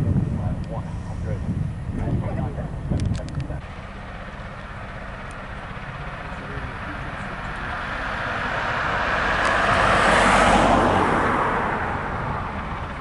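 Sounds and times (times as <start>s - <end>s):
low rumble: 0.0s - 10.2s
vehicle passing by: 3.6s - 13.0s.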